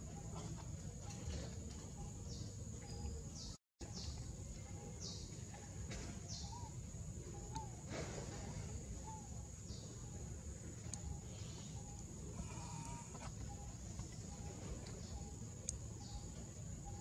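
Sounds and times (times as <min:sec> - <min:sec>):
high insect whine: 0:00.0 - 0:17.0
bird chirps: 0:06.2 - 0:07.8, 0:08.9 - 0:17.0.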